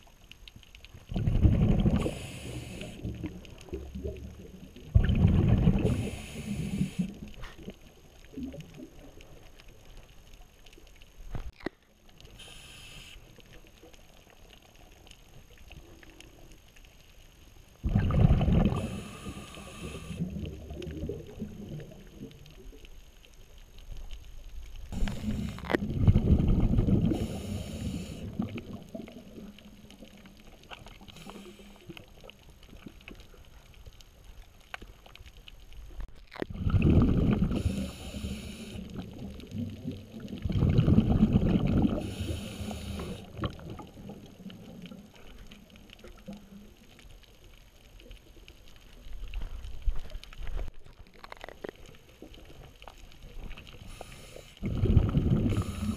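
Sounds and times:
exhaled bubbles underwater: 1.0 - 9.8, 17.8 - 22.9, 24.8 - 33.3, 36.4 - 47.1, 51.3 - 55.9
regulator breath hissing: 2.0 - 3.0, 5.9 - 7.1, 12.4 - 13.3, 18.8 - 20.2, 25.0 - 25.7, 27.1 - 28.3, 31.1 - 32.0, 37.5 - 38.9, 42.0 - 43.3, 53.9 - 54.6, 55.5 - 55.9.

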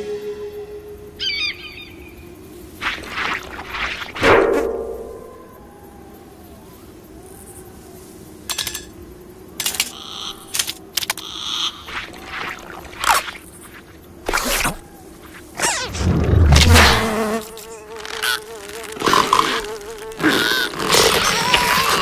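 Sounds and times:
housefly buzzing: 15.4 - 22.0.

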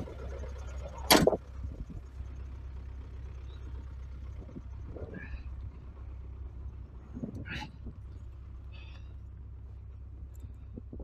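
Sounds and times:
tractor diesel engine droning: 0.0 - 11.0
loud clunk: 1.0 - 1.4.

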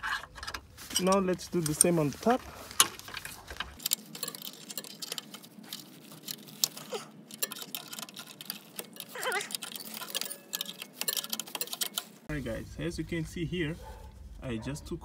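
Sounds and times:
wrench clicking and tapping on metal: 6.6 - 12.1.

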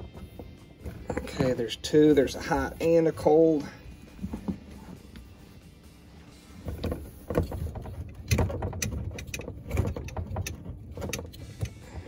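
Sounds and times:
knocks and rattles in a cabinet: 0.0 - 2.4, 4.1 - 5.0, 6.6 - 12.0.

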